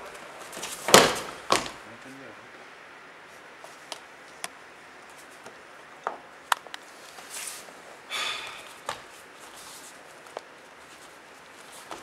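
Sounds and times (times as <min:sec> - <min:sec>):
sharp slaps and knocks on mats: 0:00.5 - 0:01.8, 0:08.8 - 0:09.1
rustling of clothing: 0:06.8 - 0:07.9, 0:08.6 - 0:12.0.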